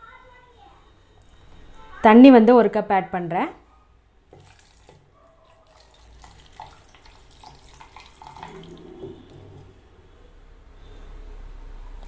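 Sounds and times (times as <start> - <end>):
water pouring into metal jar: 4.3 - 9.8
water splashing: 4.3 - 9.9.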